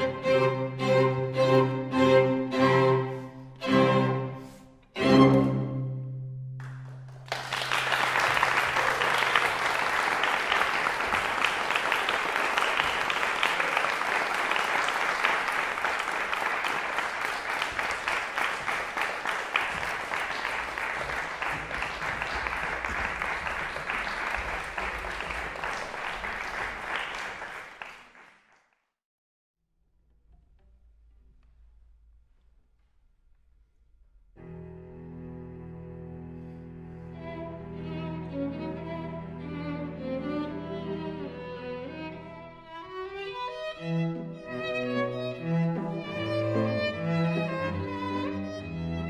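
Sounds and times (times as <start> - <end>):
string quartet chord: 0.0 - 6.5, 34.4 - 49.0
audience applauding: 6.6 - 28.8.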